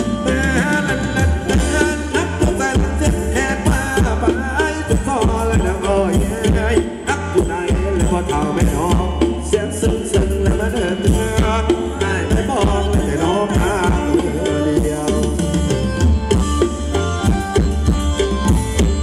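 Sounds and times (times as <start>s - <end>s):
hand drum beat: 0.0s - 19.0s.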